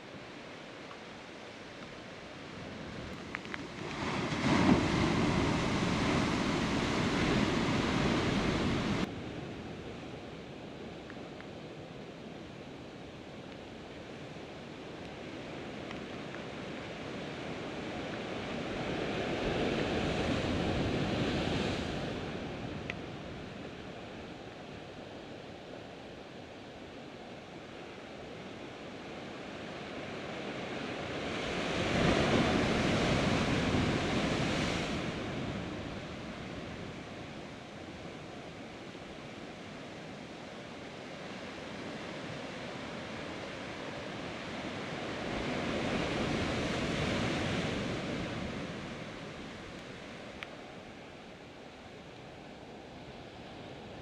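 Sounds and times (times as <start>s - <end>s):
sea surf on rocky shore: 0.1s - 11.2s, 12.3s - 54.0s
waves crashing: 1.5s - 9.1s, 15.2s - 24.2s, 29.0s - 54.0s.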